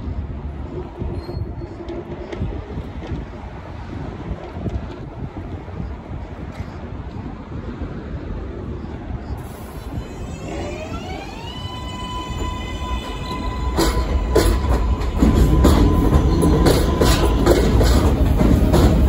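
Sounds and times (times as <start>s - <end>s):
train rumble: 0.0s - 19.0s
train motors whining: 9.6s - 19.0s
wheels clacking over rail joints: 10.5s - 19.0s.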